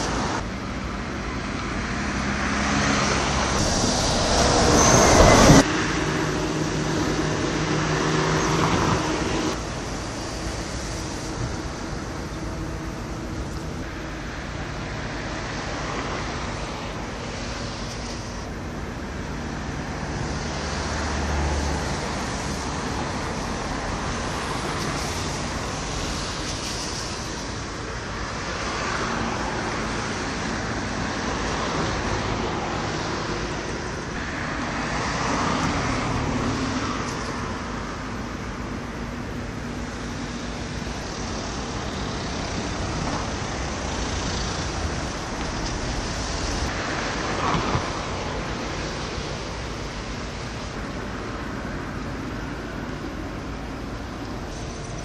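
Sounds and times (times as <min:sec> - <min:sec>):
low engine hum: 0:00.0 - 0:27.8
machinery rumble: 0:03.2 - 0:21.0.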